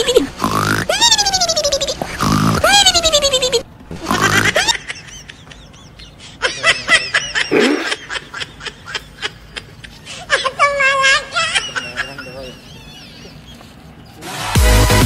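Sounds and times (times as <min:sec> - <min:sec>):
person laughing: 0:00.0 - 0:13.8.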